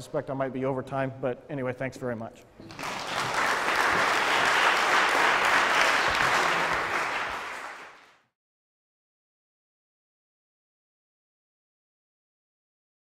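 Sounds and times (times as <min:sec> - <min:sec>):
audience applauding: 0:02.7 - 0:08.2.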